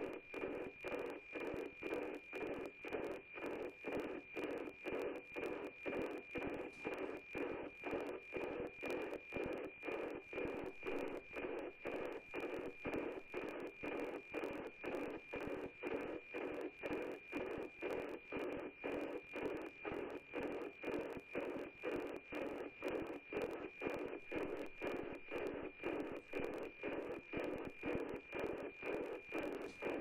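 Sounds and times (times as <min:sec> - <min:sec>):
high radio whistle with tick-tock beat: 0:00.0 - 0:30.0.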